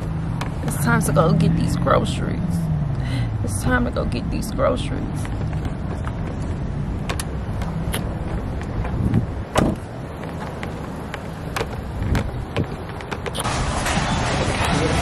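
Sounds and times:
handling clicks and knocks: 0.0 - 0.9, 5.1 - 13.6
traffic rumble: 0.0 - 15.0
car door shutting: 7.0 - 14.2.

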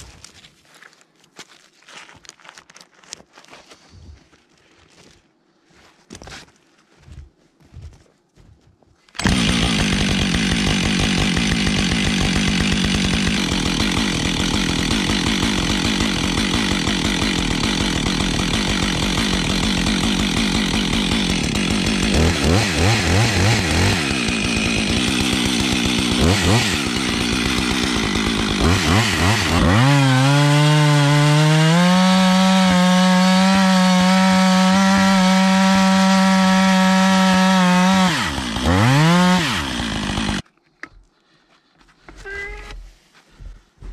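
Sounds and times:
chainsaw engine revving: 9.2 - 40.4.

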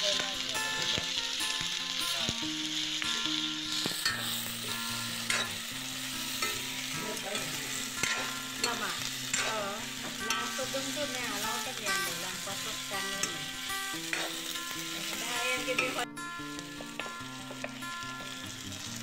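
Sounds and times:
meat and onions sizzling in wok: 0.0 - 19.0
metal spoon scraping wok: 2.7 - 17.1
spoon clinking against pan: 3.0 - 16.0.

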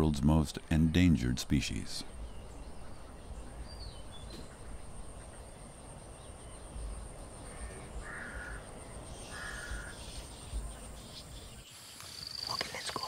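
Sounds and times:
faint bird chirps: 1.9 - 13.0
crow cawing: 7.4 - 10.2.

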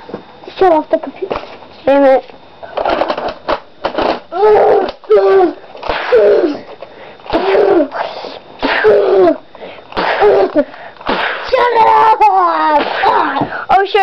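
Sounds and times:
child sneeze-like vocal bursts: 5.3 - 6.6, 7.3 - 9.4, 10.0 - 11.8, 12.6 - 13.4.

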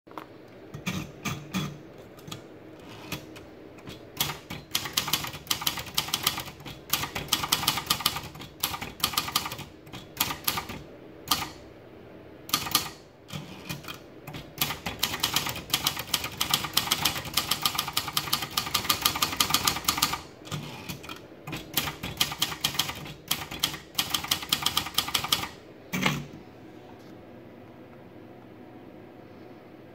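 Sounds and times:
typewriter key clacks: 3.0 - 11.6, 12.5 - 25.6.

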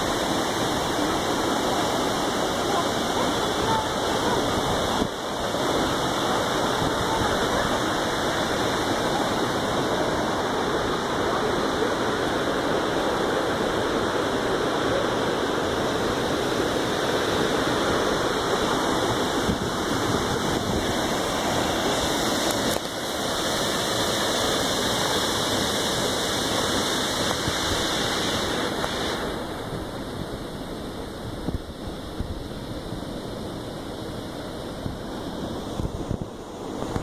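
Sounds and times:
waterfall crashing onto rocks: 0.0 - 37.0.

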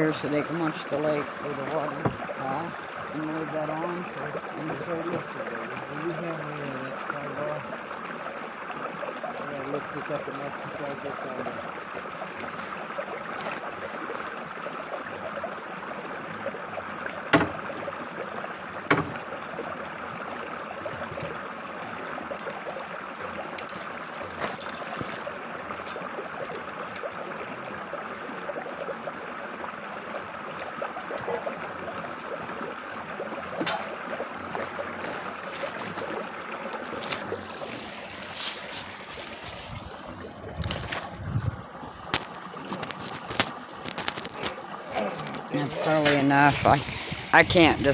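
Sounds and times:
creek trickling: 0.0 - 47.9
sharp knocks: 17.3 - 17.6, 18.9 - 19.2.

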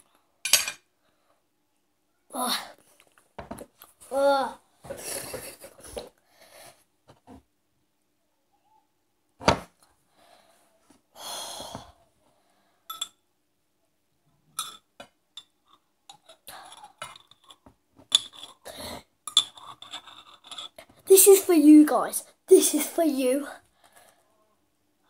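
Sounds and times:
metal spoon scraping in jar: 16.7 - 18.7, 19.3 - 20.9.

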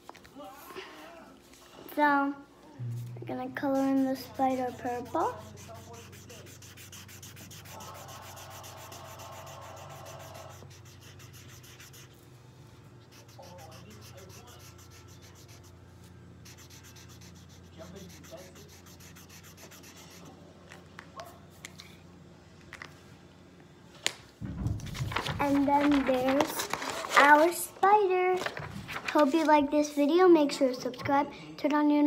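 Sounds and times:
marker scribbling on paper: 3.6 - 12.2, 13.0 - 15.7, 16.4 - 20.3.

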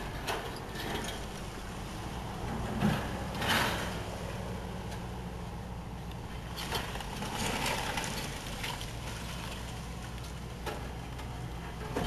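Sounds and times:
breaking masonry and falling rubble: 6.5 - 11.1.

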